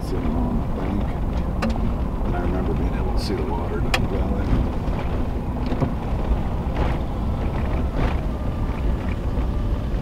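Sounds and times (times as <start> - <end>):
cab rattles: 0.0 - 10.0
truck engine and tyres rumbling: 0.0 - 10.0.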